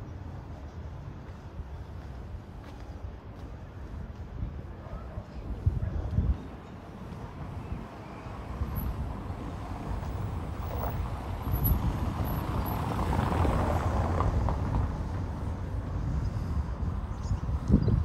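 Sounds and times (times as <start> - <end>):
motor vehicle passing: 8.3 - 17.0.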